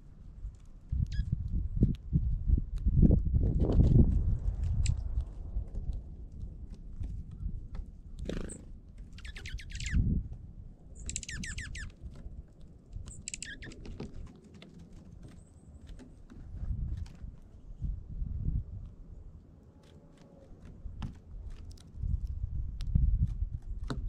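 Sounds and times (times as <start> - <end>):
scattered clicks: 4.6 - 5.3, 11.0 - 16.0
small songbirds calling: 8.5 - 10.1, 11.0 - 12.0, 13.1 - 13.9.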